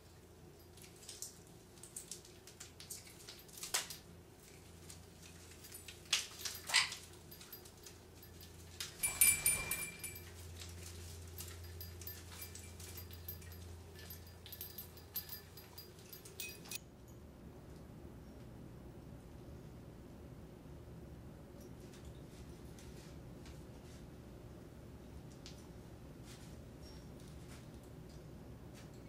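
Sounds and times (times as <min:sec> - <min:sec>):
parrot toys knocking and rattling: 0:04.8 - 0:16.8.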